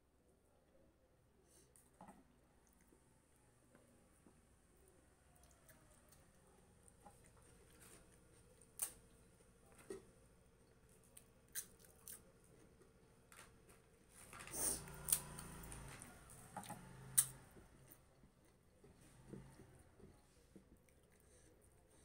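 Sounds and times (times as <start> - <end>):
sharp snaps of breaking food: 11.1 - 12.3.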